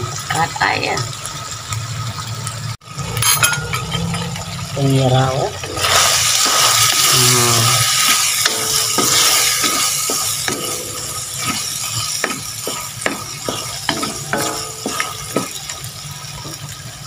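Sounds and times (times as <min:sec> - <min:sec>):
food sizzling in a wok: 0:00.0 - 0:17.0
spatula scraping a metal wok: 0:07.8 - 0:15.8.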